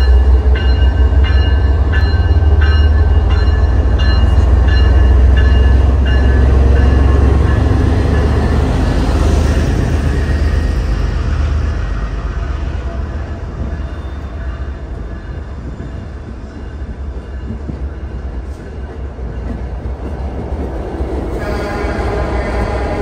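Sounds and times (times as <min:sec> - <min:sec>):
locomotive bell ringing: 0:00.0 - 0:08.8
diesel locomotive engine rumble: 0:00.0 - 0:23.0.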